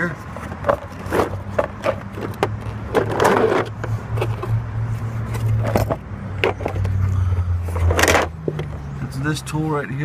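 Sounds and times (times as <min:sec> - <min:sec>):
plastic case scraping: 0:00.3 - 0:04.6, 0:07.7 - 0:08.7.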